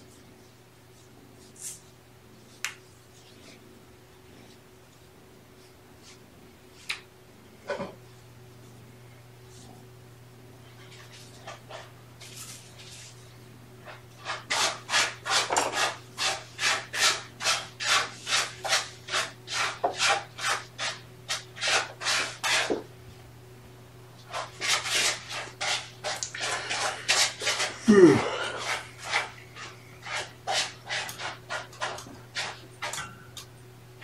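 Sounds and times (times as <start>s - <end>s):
rhythmic rasping rubs: 13.8s - 22.7s, 24.3s - 33.1s.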